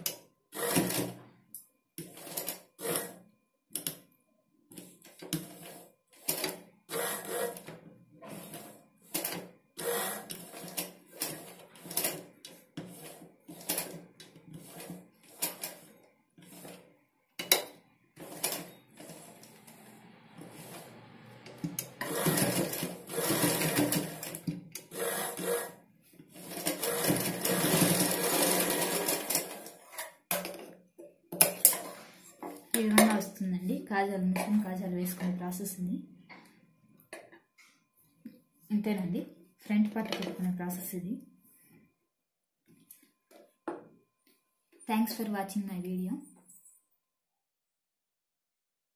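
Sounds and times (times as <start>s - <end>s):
sewing machine stitching: 0.0s - 1.3s, 2.0s - 3.2s, 4.8s - 17.5s, 18.2s - 30.6s.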